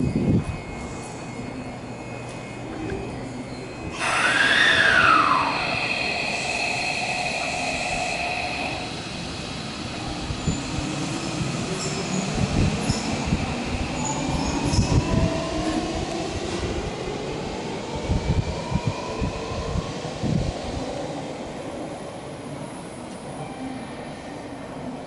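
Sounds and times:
electric train moving: 0:00.0 - 0:23.6
steady high tones: 0:00.1 - 0:12.3
train motor whine: 0:03.9 - 0:09.6.

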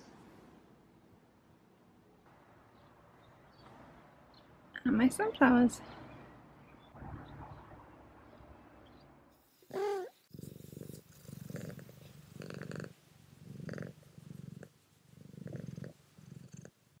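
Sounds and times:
cat purring: 0:09.6 - 0:17.0.

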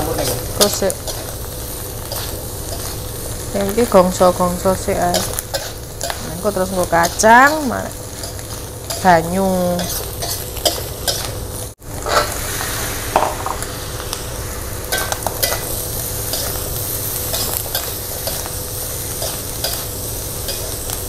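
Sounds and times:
vegetables sizzling in a wok: 0:00.0 - 0:21.0
metal spatula scraping a wok: 0:05.0 - 0:11.4, 0:12.0 - 0:13.7, 0:14.3 - 0:20.9.

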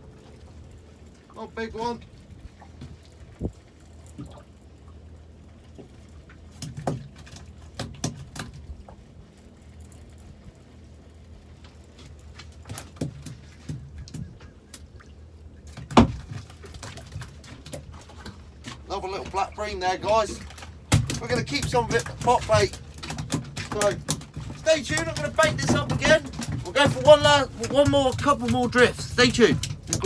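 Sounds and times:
low steady hum: 0:00.0 - 0:30.0
knocks and taps of fishing gear: 0:05.7 - 0:09.0, 0:12.0 - 0:14.9, 0:15.7 - 0:18.8, 0:20.5 - 0:30.0.

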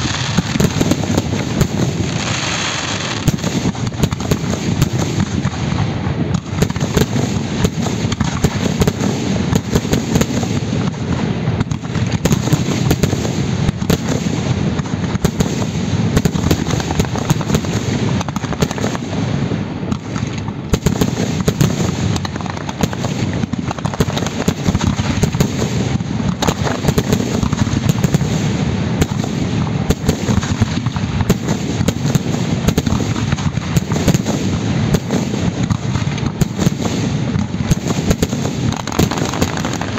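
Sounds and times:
fireworks bangs and crackle: 0:00.0 - 0:39.9.

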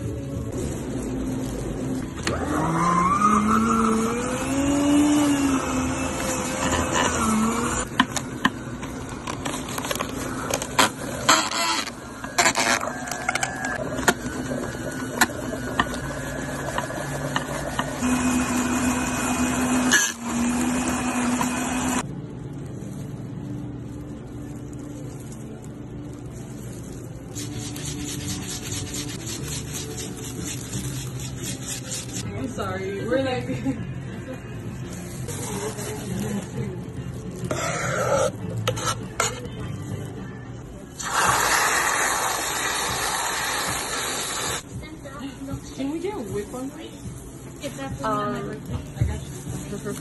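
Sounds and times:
milkshake mixer running: 0:02.2 - 0:08.5, 0:10.1 - 0:22.0, 0:41.0 - 0:44.6.

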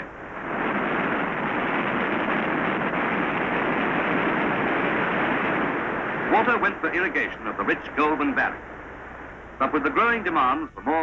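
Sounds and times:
floodwater roaring over spillway: 0:00.0 - 0:08.5.

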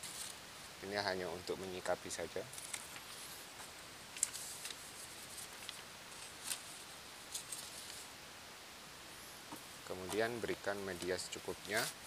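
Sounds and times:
low hiss: 0:00.0 - 0:12.0
paper crinkling: 0:02.5 - 0:03.3, 0:04.1 - 0:08.1.

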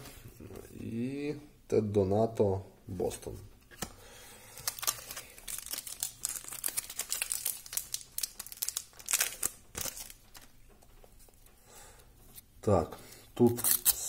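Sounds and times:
foil wrapper crinkling and tearing: 0:04.5 - 0:10.6, 0:13.4 - 0:14.0.

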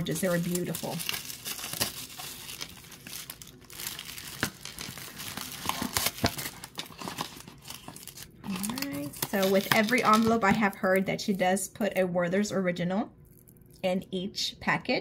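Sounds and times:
packaging crinkling: 0:00.0 - 0:11.4.

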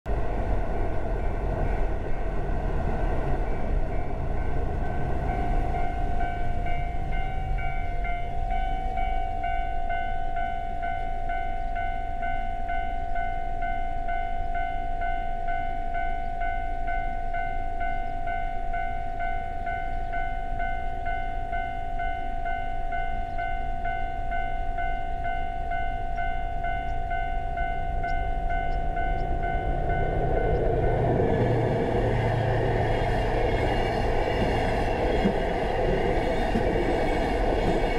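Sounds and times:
diesel train rumble: 0:00.1 - 0:37.9
level-crossing warning bell: 0:02.9 - 0:37.9
low rumble: 0:27.8 - 0:37.9.

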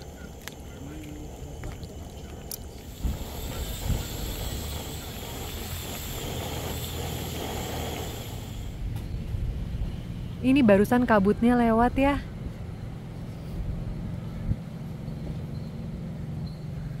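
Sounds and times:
wind gusting across microphone: 0:00.0 - 0:12.9.

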